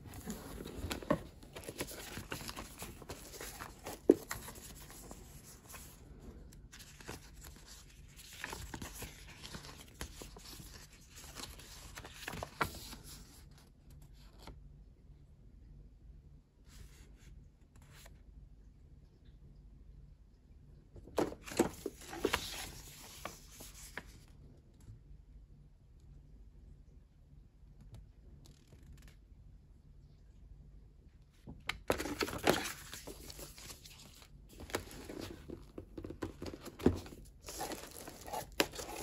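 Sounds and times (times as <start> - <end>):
paper rustling and crinkling: 0.0 - 13.6, 21.0 - 24.2, 31.7 - 39.0.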